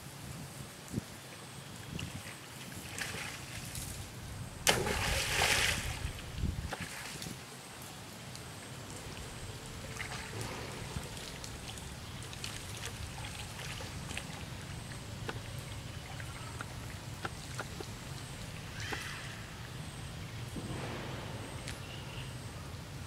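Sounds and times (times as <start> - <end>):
water splashing and lapping: 1.8 - 19.8
steady low hum: 3.2 - 7.2, 8.1 - 23.0.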